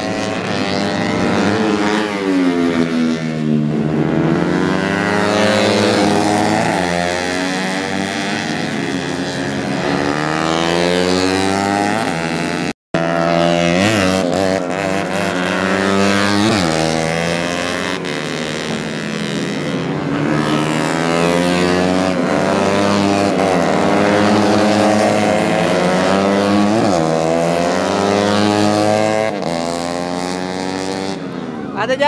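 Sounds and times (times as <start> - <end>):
racing motorcycles passing: 0.0 - 32.0.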